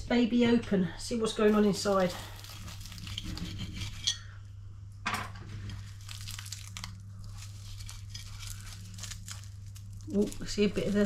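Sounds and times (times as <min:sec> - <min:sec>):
pastry crackling and tearing: 0:01.3 - 0:04.1, 0:05.5 - 0:11.0.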